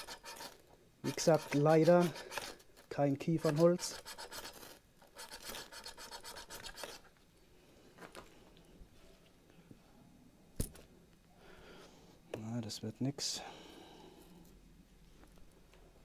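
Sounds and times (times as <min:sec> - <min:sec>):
knife scraping: 0:00.0 - 0:07.1.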